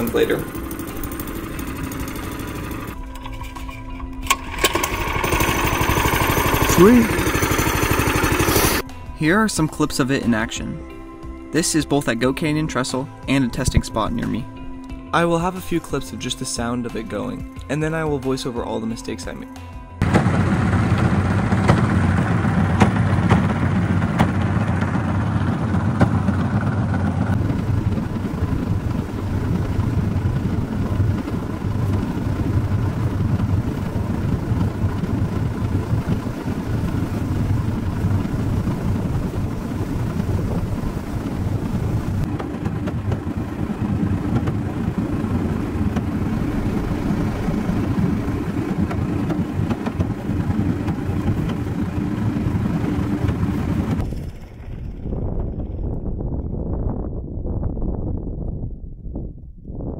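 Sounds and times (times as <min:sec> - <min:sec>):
rail cart rumbling on tracks: 0:20.0 - 0:56.6.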